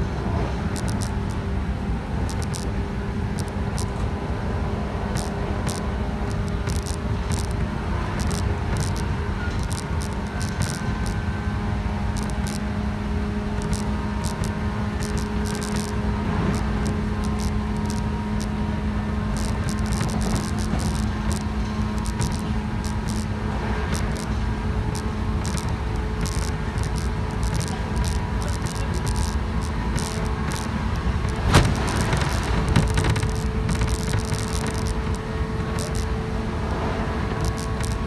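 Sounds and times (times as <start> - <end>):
traction motor hum: 0.6 - 38.0
train wheels rumbling on rails: 3.1 - 38.0
clicks and rattles: 25.4 - 36.1.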